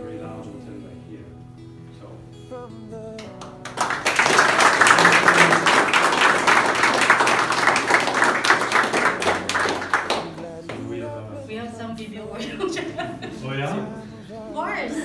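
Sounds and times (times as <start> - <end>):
people applauding: 3.2 - 10.8.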